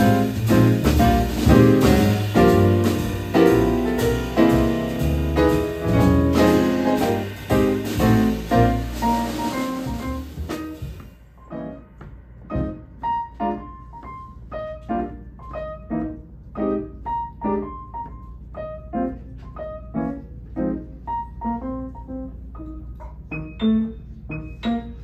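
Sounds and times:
drums and cymbals: 0.0s - 11.3s
grand piano jazz tune: 0.0s - 25.0s.

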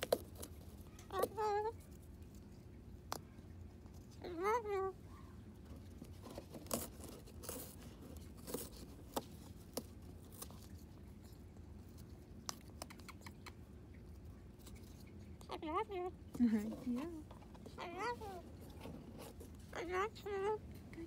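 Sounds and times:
bird chewing cardboard: 0.0s - 4.3s, 5.6s - 15.6s.

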